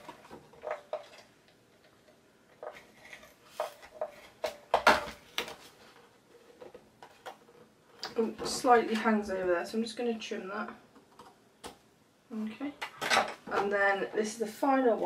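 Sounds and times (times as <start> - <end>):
cardstock rustling and scraping: 2.6 - 4.6.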